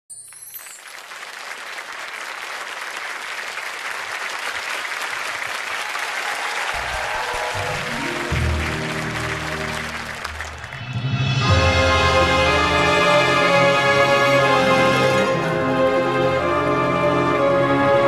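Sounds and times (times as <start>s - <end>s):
audience applauding: 0.3s - 11.2s.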